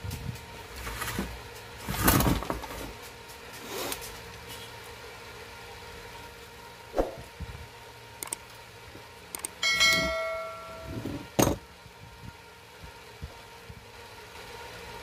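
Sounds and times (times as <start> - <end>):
bell chime: 9.6 - 11.0.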